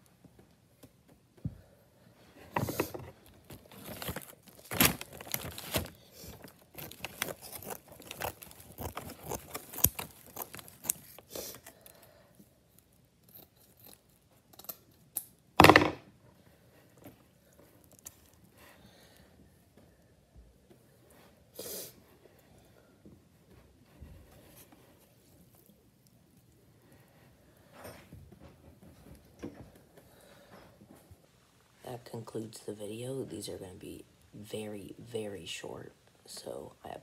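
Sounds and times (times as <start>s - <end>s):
handling clicks and rustling: 2.4s - 11.8s.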